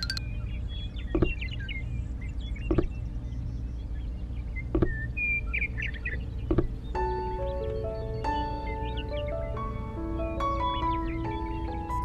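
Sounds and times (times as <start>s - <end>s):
small birds chirping: 0.0s - 12.0s
steady low rumble: 0.0s - 12.0s.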